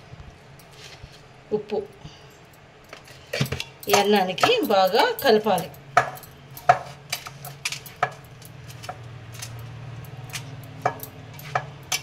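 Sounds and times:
low steady hum: 0:00.0 - 0:12.0
glass bangles clinking: 0:02.4 - 0:12.0.

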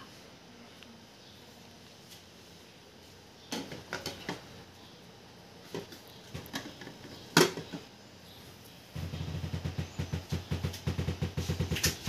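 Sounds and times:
plastic knocks and scrapes: 0:09.0 - 0:12.0.

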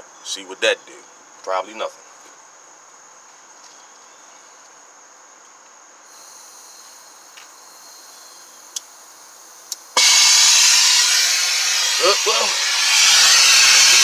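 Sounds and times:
cricket chirping: 0:00.0 - 0:14.0
blow torch gas hissing: 0:10.0 - 0:14.0.

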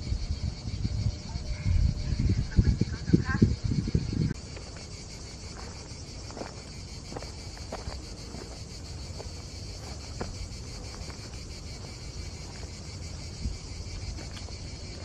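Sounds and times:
crickets chirping: 0:00.0 - 0:15.0
soft footsteps on path: 0:04.4 - 0:15.0.

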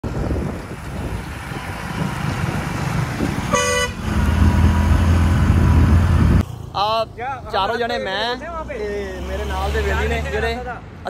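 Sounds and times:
bus diesel engine: 0:00.0 - 0:11.0
bus horn blast: 0:03.4 - 0:04.4.

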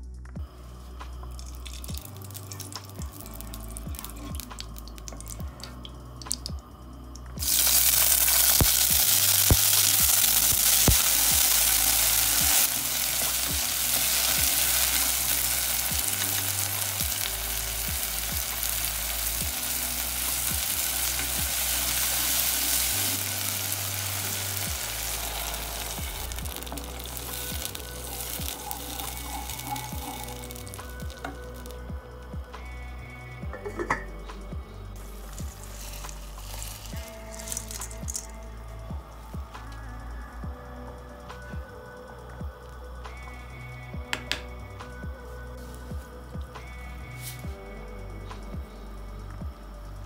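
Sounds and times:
soft background music: 0:00.0 - 0:50.0
vegetables sizzling in hot fat: 0:01.2 - 0:06.5, 0:07.4 - 0:32.0, 0:35.0 - 0:38.4.

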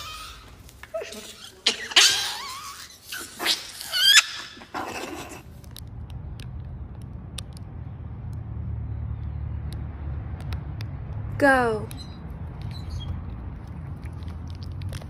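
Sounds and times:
small animal squealing: 0:00.0 - 0:05.5
faint low rumble: 0:05.0 - 0:15.0.

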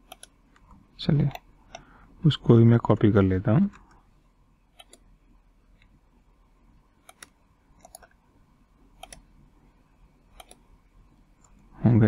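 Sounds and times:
computer mouse clicks: 0:00.0 - 0:01.9, 0:04.7 - 0:05.1, 0:07.0 - 0:08.2, 0:08.9 - 0:09.3, 0:10.3 - 0:10.7.

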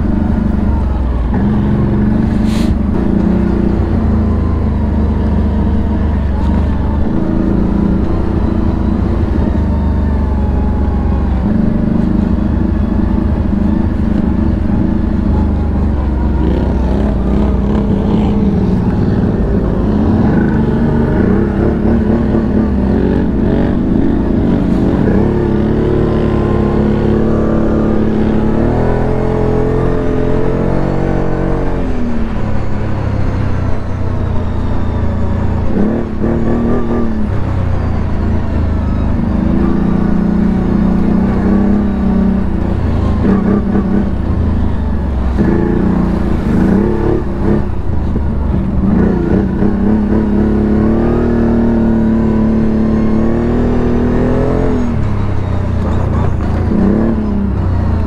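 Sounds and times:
atv engine revving: 0:00.0 - 0:58.0.

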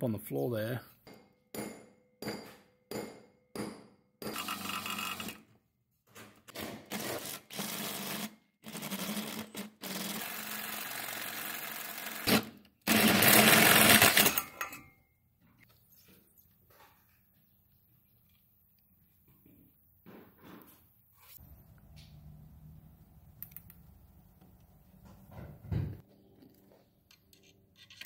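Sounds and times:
small power tool running: 0:04.3 - 0:05.4, 0:07.2 - 0:14.3.

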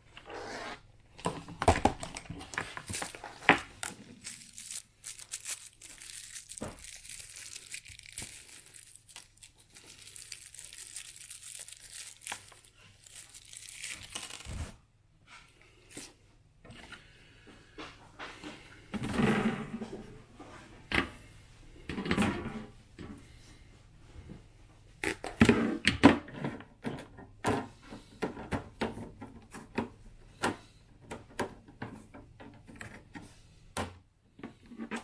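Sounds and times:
plastic wrapping crinkling: 0:01.8 - 0:14.7.

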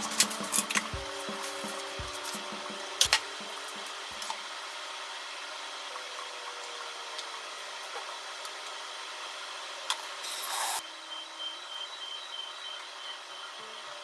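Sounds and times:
fan noise: 0:00.0 - 0:14.0.

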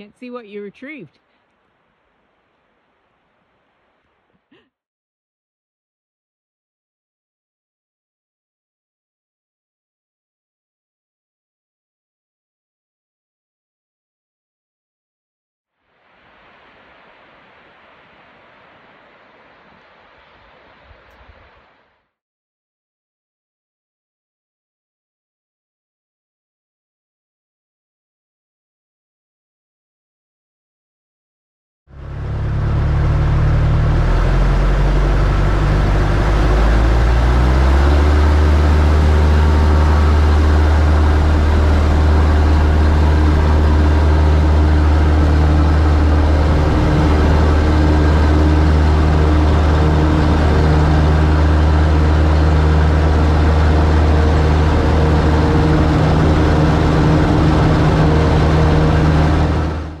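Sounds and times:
light aircraft engine and propeller: 0:31.9 - 1:00.0.

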